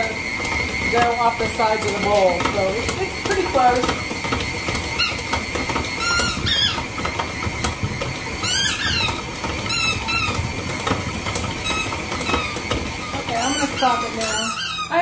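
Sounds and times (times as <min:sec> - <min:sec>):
stand mixer humming: 0:00.0 - 0:15.0
squeaky toy ball squeaking: 0:05.0 - 0:05.3, 0:06.0 - 0:06.9, 0:08.4 - 0:10.5, 0:11.6 - 0:15.0.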